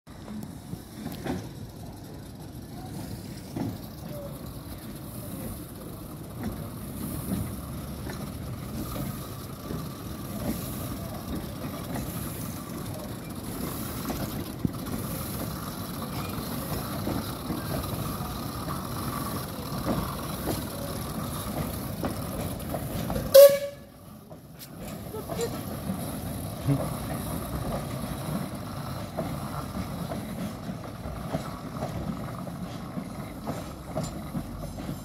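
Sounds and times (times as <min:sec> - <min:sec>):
train rumbling on rails: 0:00.1 - 0:35.0.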